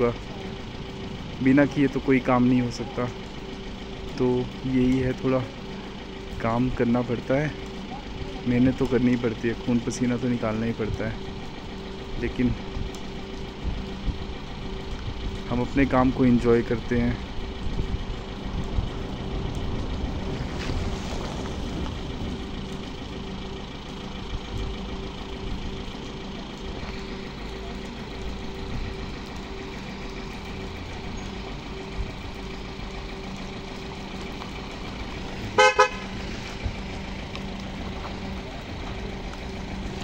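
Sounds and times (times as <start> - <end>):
vehicle engine humming: 0.0 - 40.0
vehicle horn toots: 35.5 - 36.3.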